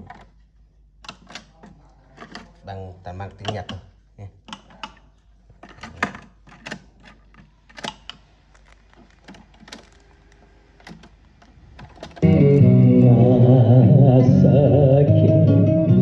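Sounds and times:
music from tape: 0:12.2 - 0:16.0.

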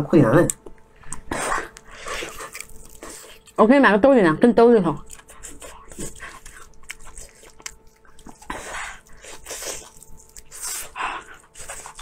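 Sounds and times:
person chewing and slurping: 0:01.0 - 0:03.6, 0:05.0 - 0:12.0.

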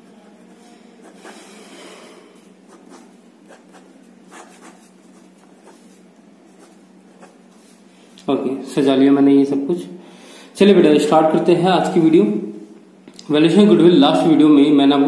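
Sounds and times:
pen scratching on paper: 0:00.3 - 0:01.8, 0:02.7 - 0:07.4.

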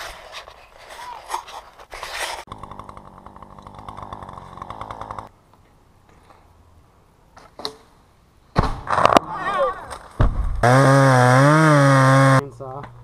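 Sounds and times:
chainsaw running: 0:02.5 - 0:05.3, 0:10.6 - 0:12.4.

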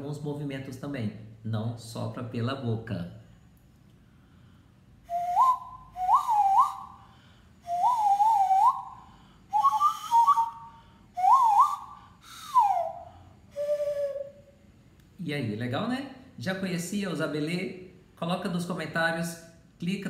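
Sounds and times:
breathy nose flute whistle: 0:05.0 - 0:14.6.

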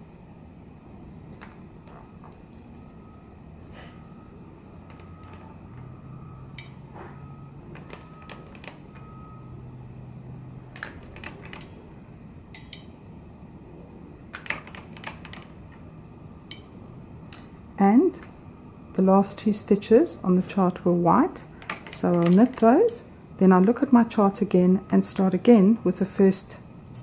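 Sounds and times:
faint low hum: 0:00.0 - 0:27.0.

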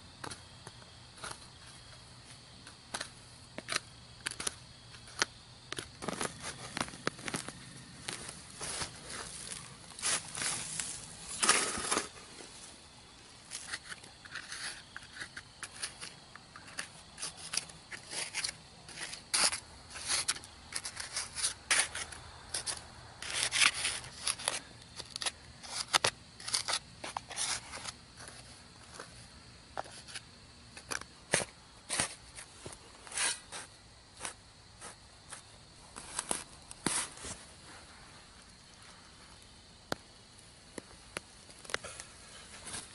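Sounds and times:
trowel scraping clay soil: 0:02.6 - 0:12.5, 0:13.5 - 0:29.0, 0:29.8 - 0:38.0.

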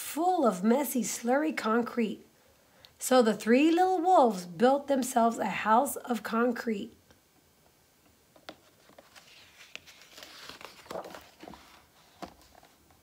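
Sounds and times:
book pages turning: 0:08.3 - 0:13.0.

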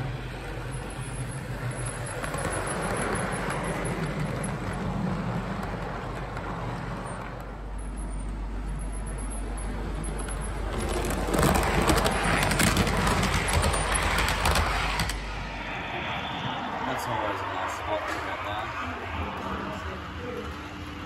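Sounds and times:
model train rolling rumble: 0:00.0 - 0:15.3
rattle of fast wheel clicks: 0:08.9 - 0:15.2.

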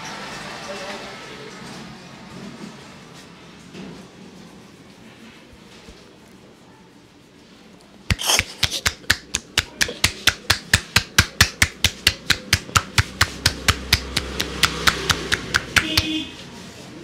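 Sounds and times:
palms chopping on scalp: 0:08.1 - 0:16.2.

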